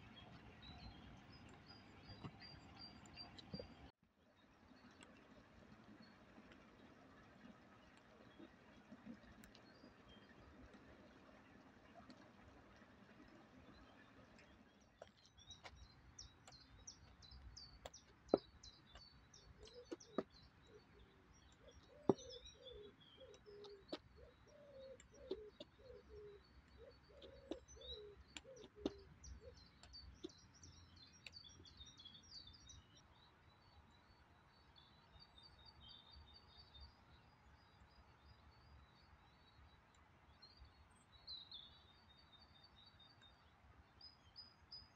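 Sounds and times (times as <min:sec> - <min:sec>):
small birds chirping: 0:00.0 - 0:03.9, 0:04.6 - 0:44.9
lower repeated bird calls: 0:15.0 - 0:33.0.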